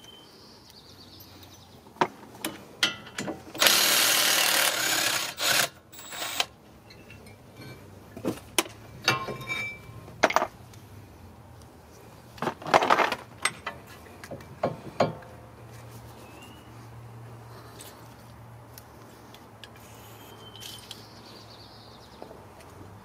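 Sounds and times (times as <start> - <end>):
metal clicks and clanks: 2.4 - 3.7, 6.8 - 10.5, 12.4 - 15.3
power tool burst: 3.6 - 6.5.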